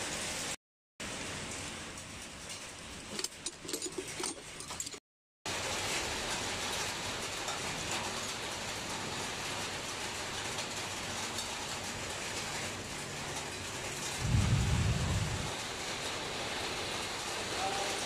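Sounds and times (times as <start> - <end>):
metal spanners clinking: 3.1 - 5.0
rain hissing: 5.5 - 18.0.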